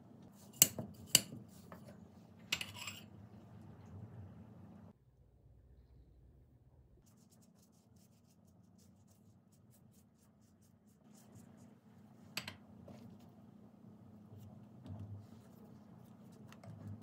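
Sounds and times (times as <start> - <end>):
pastry brush strokes on dough: 7.0 - 12.3, 14.3 - 17.0.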